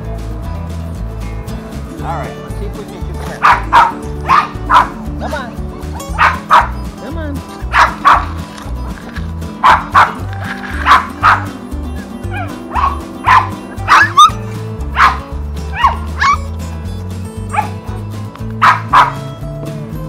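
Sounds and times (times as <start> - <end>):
background music: 0.0 - 20.0
puppies yipping and barking: 3.2 - 5.0, 5.8 - 7.0, 7.6 - 8.5, 9.5 - 16.5, 17.4 - 17.9, 18.6 - 19.4.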